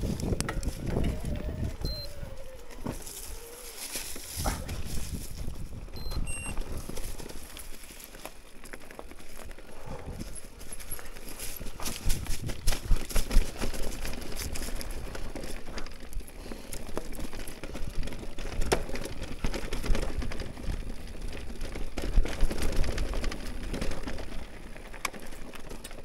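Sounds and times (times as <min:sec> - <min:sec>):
bike rattling over bumps: 0:00.0 - 0:26.0
tyres crackling over leaves and stones: 0:00.0 - 0:26.0.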